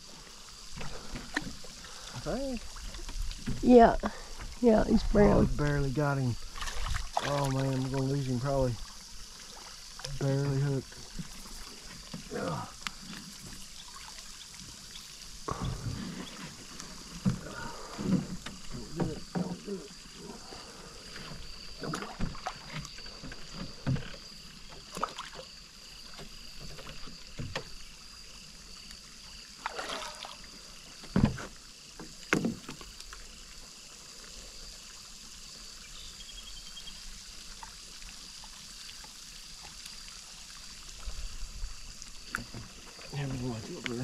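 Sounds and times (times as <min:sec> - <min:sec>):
water splashing: 0:00.0 - 0:27.8, 0:29.3 - 0:34.2
fish thrashing at water surface: 0:06.5 - 0:07.9, 0:29.6 - 0:30.4.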